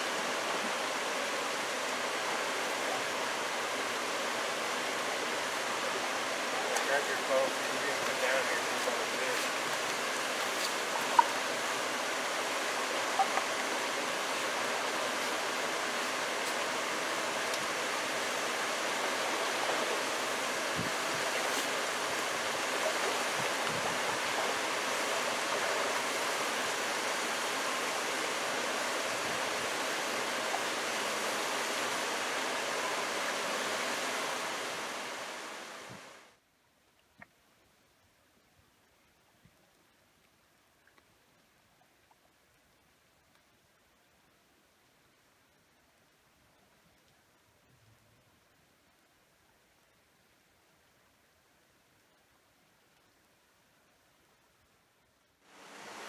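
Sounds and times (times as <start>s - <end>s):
stream rushing over rapids: 0.0s - 36.4s, 55.4s - 56.0s.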